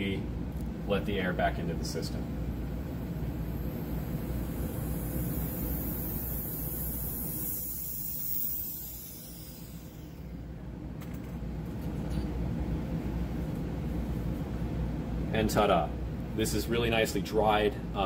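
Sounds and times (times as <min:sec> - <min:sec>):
low steady hum: 0:00.0 - 0:18.0
air hissing into vacuum: 0:03.2 - 0:10.5.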